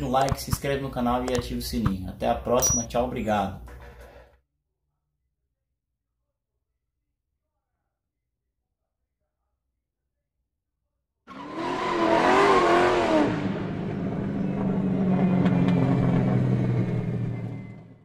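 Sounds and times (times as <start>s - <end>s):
car engine revving: 11.3s - 17.8s.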